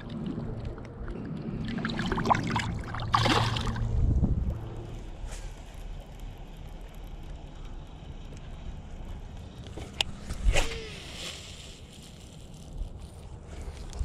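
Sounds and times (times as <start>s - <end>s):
water noise: 0.0s - 5.2s
wind: 0.0s - 14.0s
fishing line swish: 10.1s - 12.0s.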